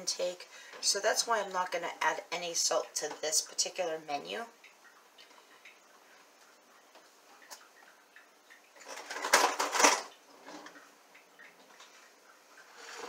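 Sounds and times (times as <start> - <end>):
kitchen utensils clattering: 8.8 - 10.8.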